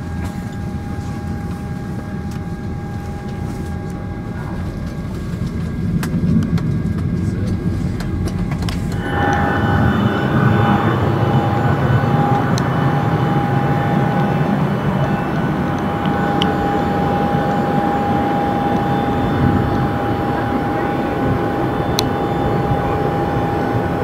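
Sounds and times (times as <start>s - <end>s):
jet engine rumble: 0.0s - 24.0s
high-pitched jet whine: 7.3s - 24.0s.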